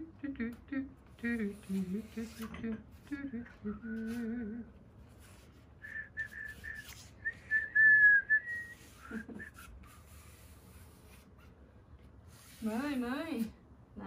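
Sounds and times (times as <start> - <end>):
person humming: 0.0 - 4.7
person whistling a jingle: 5.8 - 9.6.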